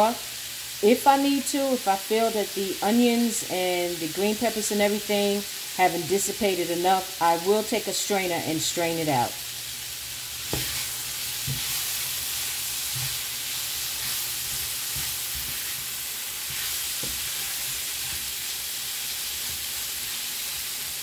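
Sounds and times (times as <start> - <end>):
sausage sizzling in a skillet: 0.0 - 21.0.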